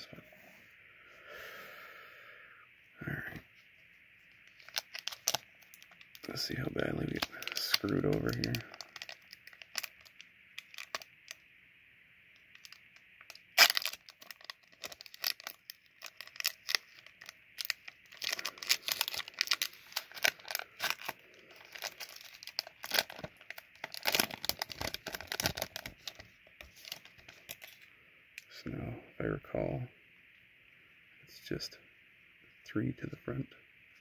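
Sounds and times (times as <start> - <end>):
wrapper tearing and crinkling: 4.5 - 6.3, 7.1 - 11.1, 12.5 - 27.8.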